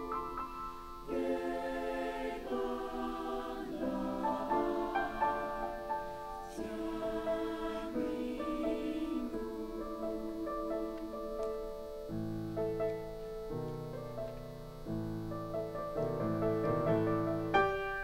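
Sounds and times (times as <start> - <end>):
mixed choir singing chords: 0.0 - 12.2.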